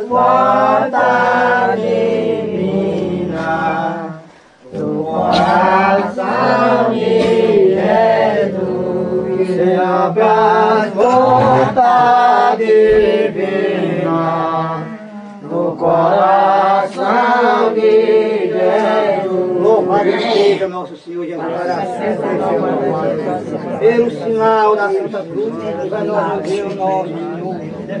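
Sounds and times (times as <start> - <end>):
voices chanting a hymn: 0.0 - 28.0.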